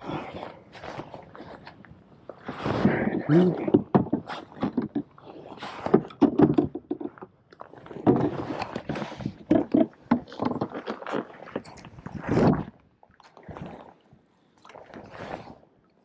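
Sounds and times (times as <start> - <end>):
gear knocking on plastic hull: 3.4 - 5.1, 5.9 - 7.3, 8.0 - 10.8.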